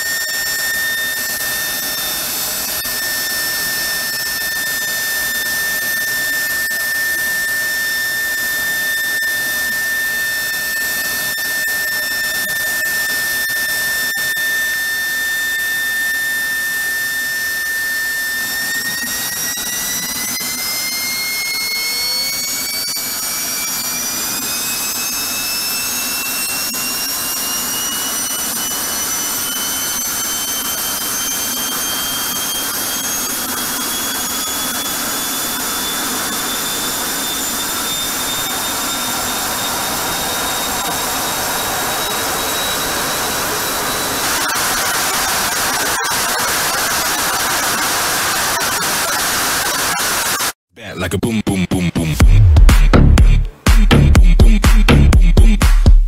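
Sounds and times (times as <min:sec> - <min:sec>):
jet engine whine: 0:00.0 - 0:50.6.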